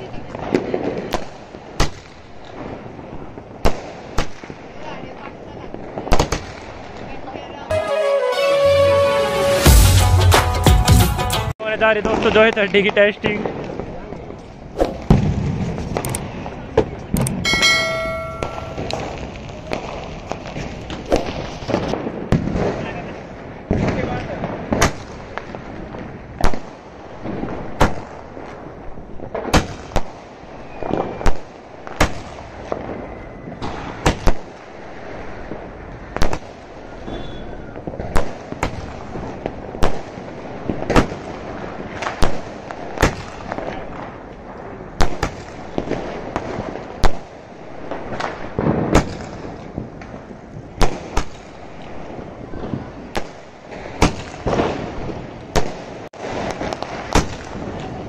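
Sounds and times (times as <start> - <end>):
firework shells banging: 17.0 - 19.8.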